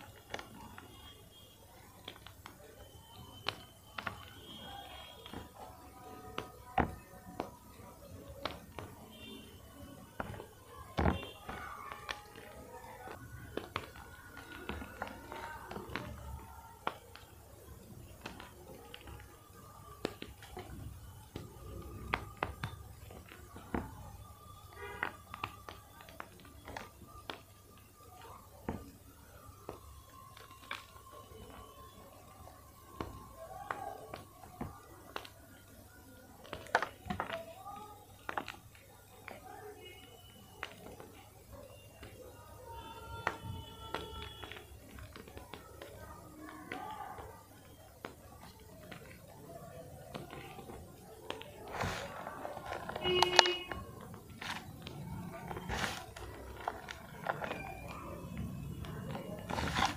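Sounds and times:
chalk crumbling in hand: 50.1 - 59.9.

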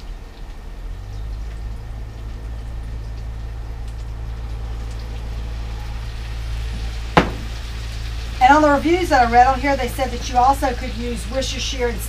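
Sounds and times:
sauce pouring: 3.3 - 8.4
mushrooms sizzling in frying pan: 4.2 - 12.0.

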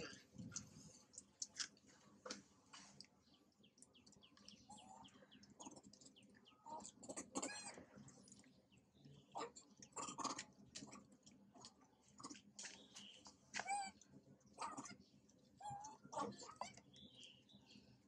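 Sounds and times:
high-pitched chirping calls: 3.8 - 7.8.

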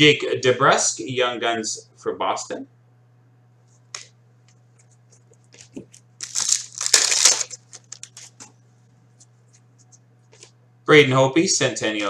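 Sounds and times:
foil pack crinkling and tearing: 6.2 - 8.4.

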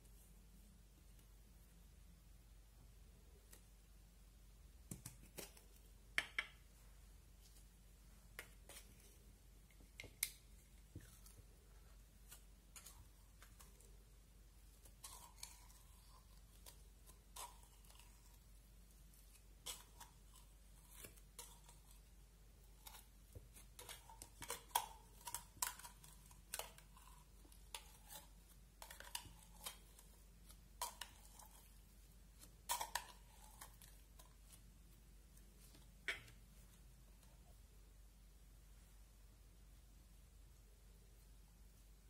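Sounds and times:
slime being scraped: 14.7 - 34.8.

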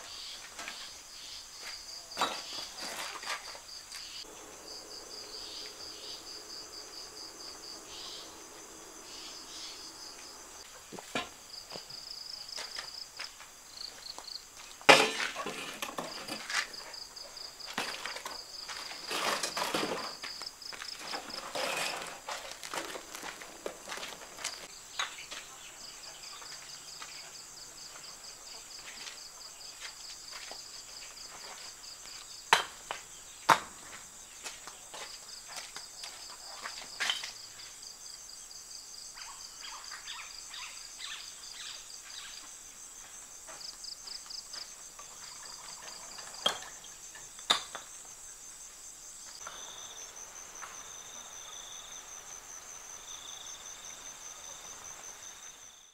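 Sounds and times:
crickets trilling: 0.0 - 55.9.

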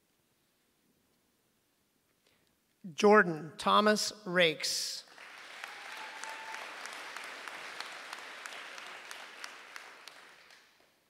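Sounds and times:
audience applauding: 5.1 - 10.9.

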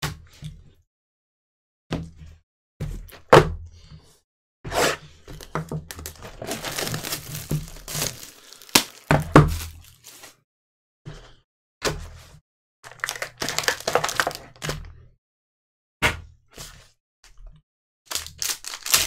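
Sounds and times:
cardboard rustling and sliding: 5.4 - 10.4
cardboard boxes thunking down: 5.5 - 9.8.

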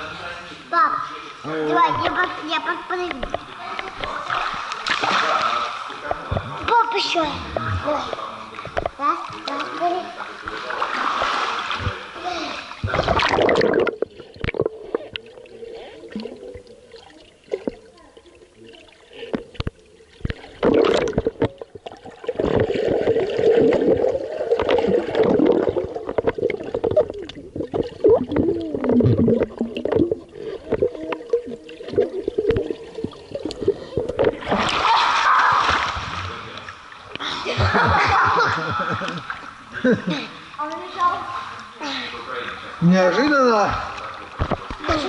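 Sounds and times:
underwater knocks and clicks: 3.0 - 5.0, 6.0 - 6.7, 7.5 - 9.7, 12.8 - 15.4, 19.3 - 34.7, 43.7 - 45.0
underwater gurgling and bubbling: 12.8 - 34.9.

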